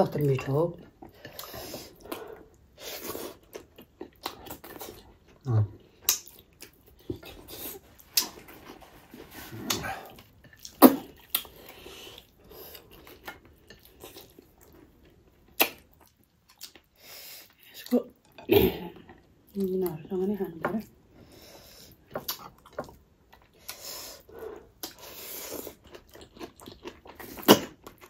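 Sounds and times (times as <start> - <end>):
wet chewing: 0.8 - 17.7, 21.8 - 28.0
lip smacks: 15.6 - 16.8.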